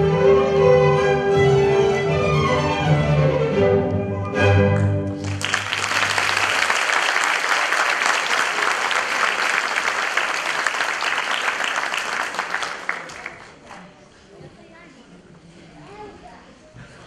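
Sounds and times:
audience applause: 0:05.1 - 0:13.8.

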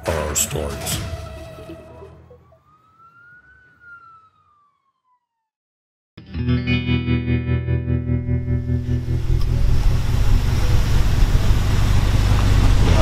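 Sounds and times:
siren wail: 0:00.8 - 0:05.6.

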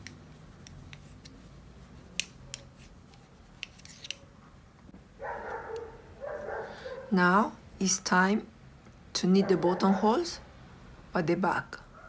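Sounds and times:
metal knitting needles clicking: 0:00.0 - 0:01.4, 0:02.1 - 0:04.2.

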